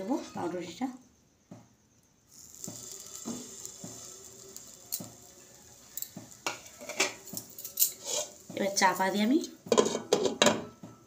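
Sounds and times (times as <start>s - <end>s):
bread sizzling in butter: 2.3s - 10.2s
dishes and utensils clinking: 4.8s - 8.6s, 9.6s - 11.0s.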